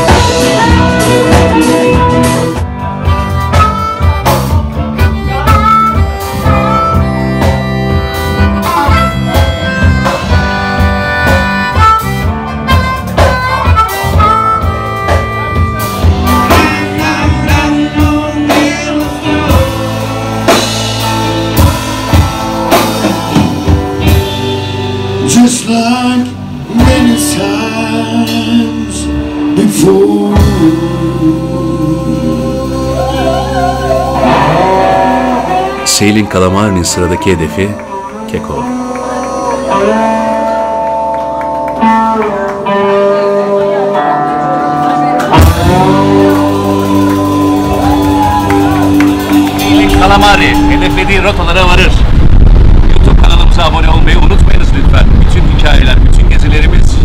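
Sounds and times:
man singing: 0:00.0 - 0:03.1, 0:15.8 - 0:20.8, 0:25.1 - 0:40.8, 0:45.3 - 0:47.9, 0:49.3 - 0:51.0
harmonica: 0:00.0 - 0:24.4
drum kit: 0:00.0 - 0:43.8, 0:44.4 - 0:57.0
electric guitar: 0:00.0 - 0:57.0.

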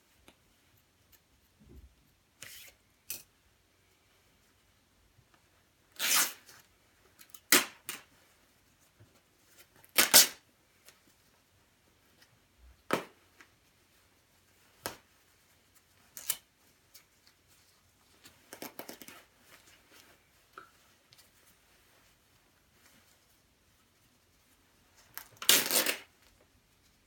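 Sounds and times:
fabric ripping: 0:06.0 - 0:06.5, 0:10.0 - 0:10.4, 0:25.2 - 0:26.1
fabric rustling: 0:13.2 - 0:25.1.

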